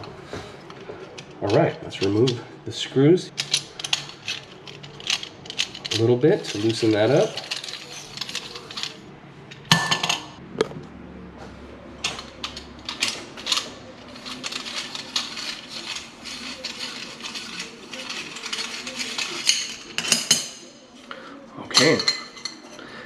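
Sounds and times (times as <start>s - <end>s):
metal strainer parts clinking: 12.0s - 20.6s.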